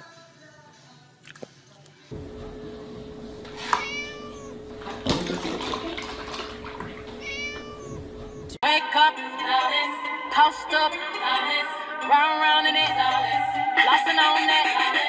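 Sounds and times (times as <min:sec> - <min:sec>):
steady hum: 0:02.1 - 0:08.6
kitten meowing: 0:03.3 - 0:04.8, 0:06.2 - 0:08.6
milk pouring into plastic tub: 0:03.3 - 0:08.1.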